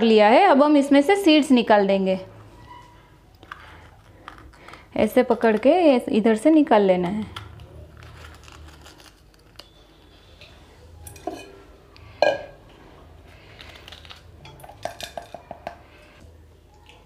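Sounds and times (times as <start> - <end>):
dishes clinking: 10.4 - 12.6.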